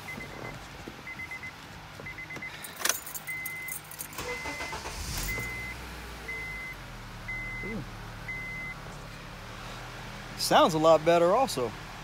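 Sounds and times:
car warning chime beeping: 0:00.0 - 0:08.8
car engine cranking and idling: 0:00.0 - 0:12.0
ignition key jangle and click: 0:02.1 - 0:05.6.

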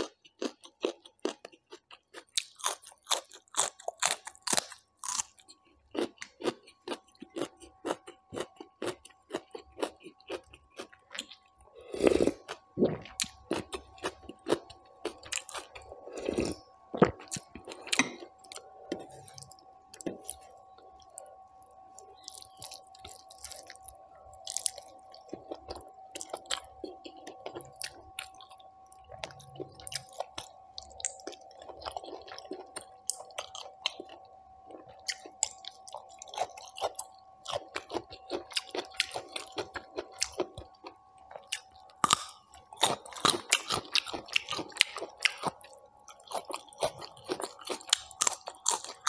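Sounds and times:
faint steady hum: 0:00.0 - 0:49.0
wet chewing: 0:21.9 - 0:49.0.

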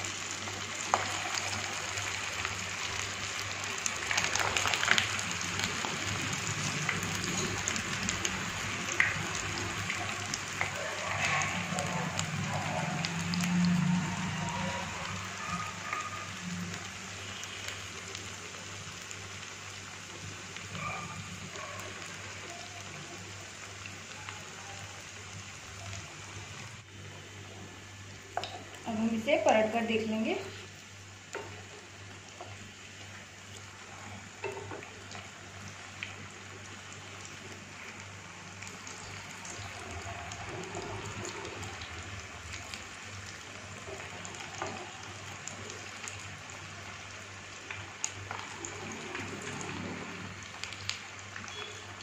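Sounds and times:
food deep-frying in oil: 0:00.0 - 0:52.0.

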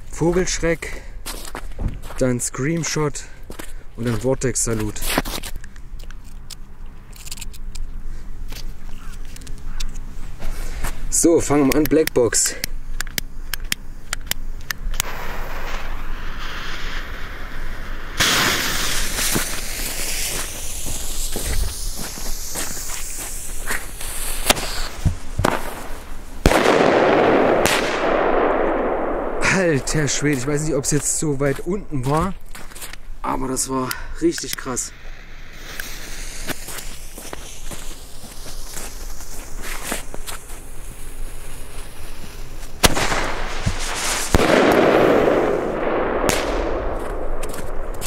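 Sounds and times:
sharp cracks: 0:11.5 - 0:33.0, 0:42.6 - 0:48.0
firework hiss climbing: 0:13.3 - 0:31.4, 0:34.4 - 0:48.0
firework launch bang: 0:14.9 - 0:23.2, 0:24.2 - 0:30.5, 0:42.8 - 0:48.0
firework burst bang: 0:15.0 - 0:21.8, 0:24.4 - 0:30.3, 0:42.8 - 0:48.0.

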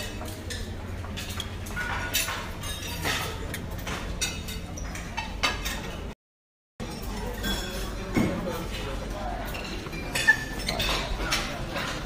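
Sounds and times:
dishes and cutlery clinking: 0:00.0 - 0:06.2, 0:06.8 - 0:12.0.

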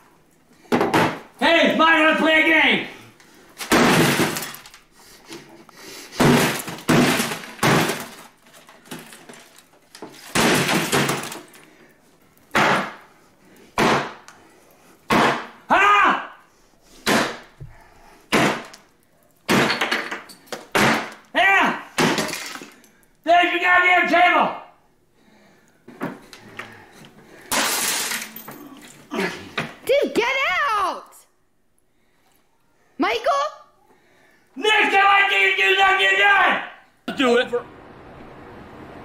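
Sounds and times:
glass breaking and crunching: 0:03.6 - 0:04.8, 0:06.2 - 0:11.6, 0:22.0 - 0:22.9, 0:27.5 - 0:29.0.

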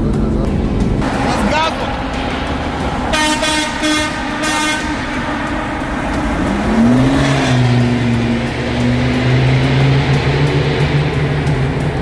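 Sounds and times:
vehicle engine drone in tunnel: 0:00.0 - 0:12.0
car horn honks: 0:03.1 - 0:05.7.

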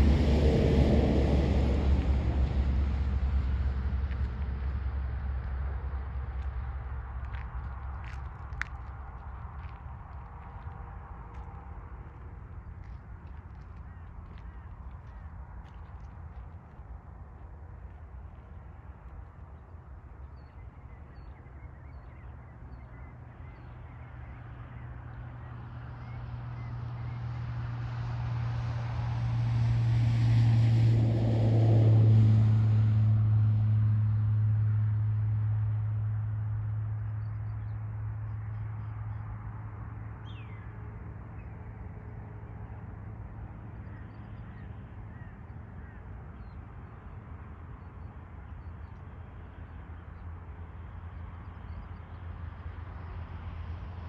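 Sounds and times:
vehicle passing by: 0:00.0 - 0:07.4, 0:24.4 - 0:48.0.

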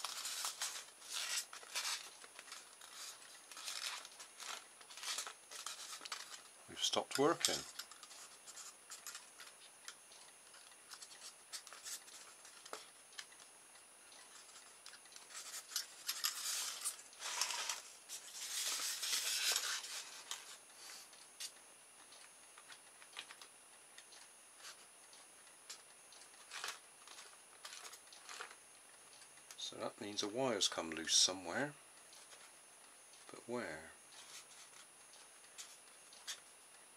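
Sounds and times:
rustling scrapes: 0:00.0 - 0:06.4, 0:15.3 - 0:21.1.

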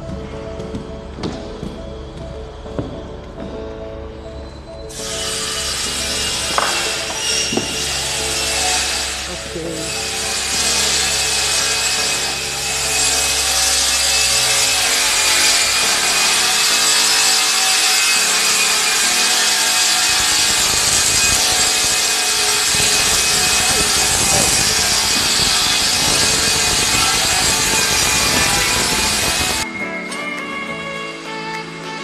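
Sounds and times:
power tool whirring: 0:04.9 - 0:29.7.

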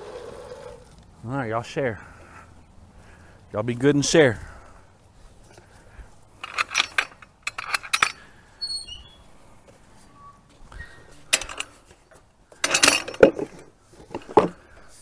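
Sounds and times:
clattering in wooden trough: 0:11.3 - 0:11.8, 0:12.6 - 0:14.6.

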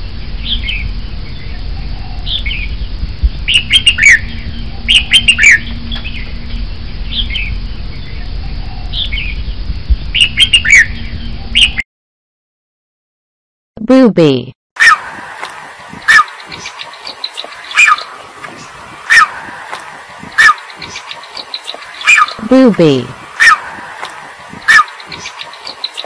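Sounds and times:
low background rumble: 0:00.0 - 0:11.8, 0:15.0 - 0:25.9
bird singing whistled notes: 0:03.5 - 0:11.8, 0:16.1 - 0:22.5, 0:23.1 - 0:26.0.

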